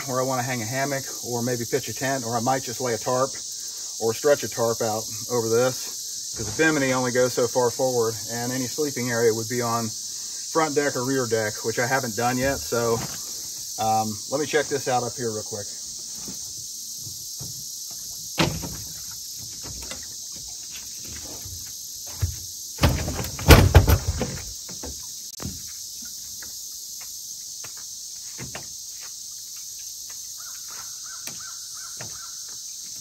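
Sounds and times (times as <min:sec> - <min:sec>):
insect chorus: 0:00.0 - 0:33.0.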